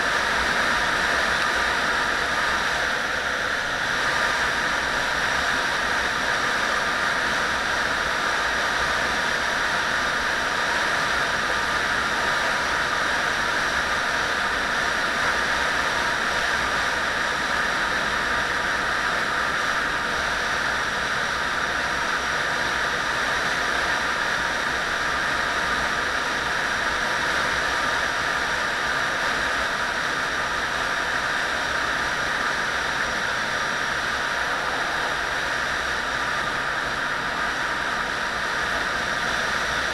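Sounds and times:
wind rush on microphone: 0.0 - 39.9
road noise: 31.8 - 39.9.

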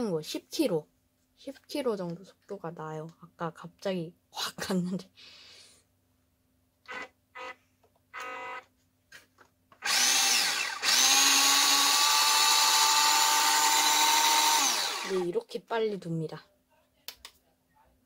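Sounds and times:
toy truck electric motor whining: 8.2 - 8.6, 9.8 - 15.3.

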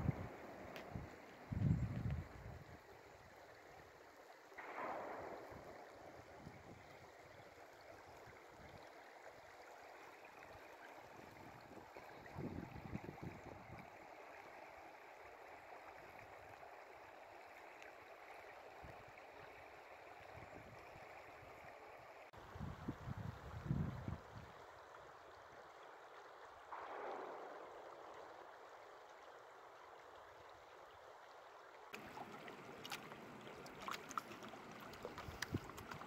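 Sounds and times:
water swish: 4.6 - 13.9, 31.9 - 36.0.

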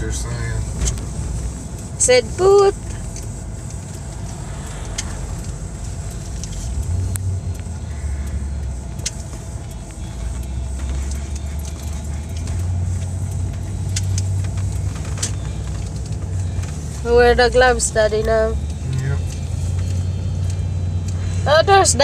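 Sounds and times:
vehicle engine and road noise: 0.0 - 22.0
clicks and rattles in cab: 6.4 - 22.0.

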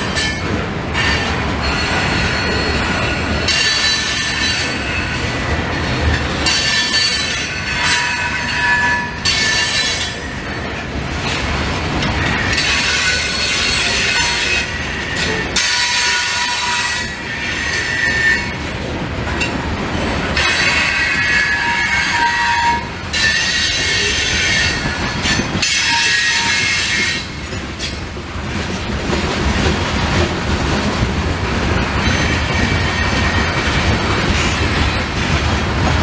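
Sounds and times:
train wheels rumbling on rail: 0.0 - 36.0
high-pitched wheel squeal: 20.6 - 27.3.

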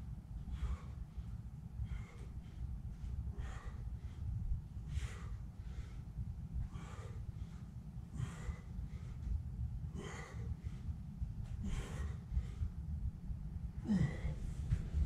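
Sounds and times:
steady low rumble: 0.0 - 15.0
man grunting: 13.8 - 14.4.

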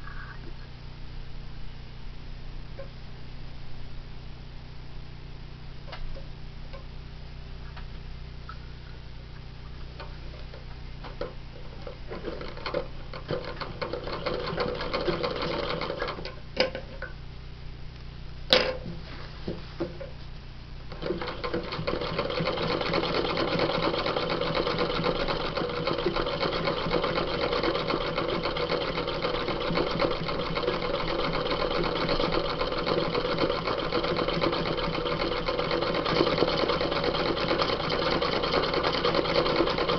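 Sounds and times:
sewing machine stitching: 12.1 - 16.3, 20.9 - 39.9.

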